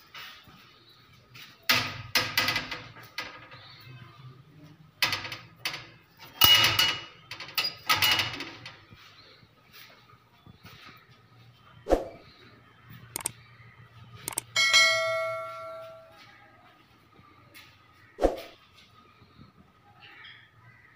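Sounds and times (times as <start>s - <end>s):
metal bird cage door clanking: 1.7s - 3.6s, 5.0s - 8.8s.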